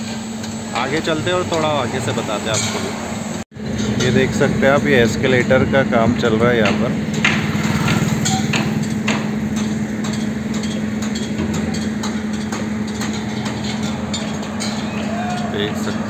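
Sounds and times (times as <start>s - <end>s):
engine humming: 0.0s - 16.0s
construction knocks and clanks: 3.6s - 16.0s.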